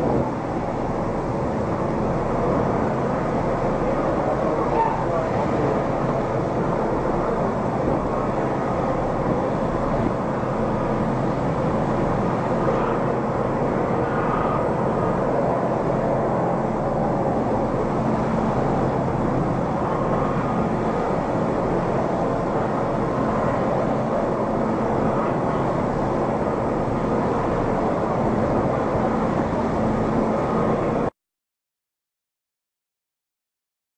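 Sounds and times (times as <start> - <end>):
waves breaking around ship bow: 0.0 - 31.1.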